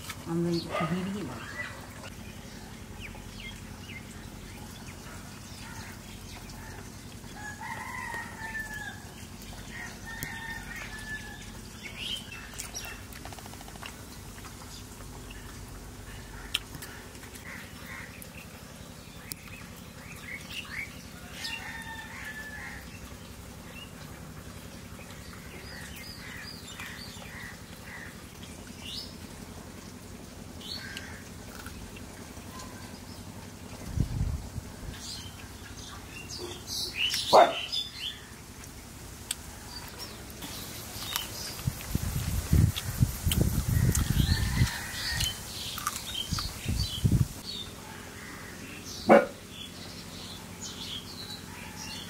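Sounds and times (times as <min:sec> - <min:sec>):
small birds chirping: 0:00.0 - 0:29.3, 0:30.6 - 0:38.5, 0:39.2 - 0:52.0
chickens calling: 0:00.4 - 0:13.4, 0:39.2 - 0:52.0.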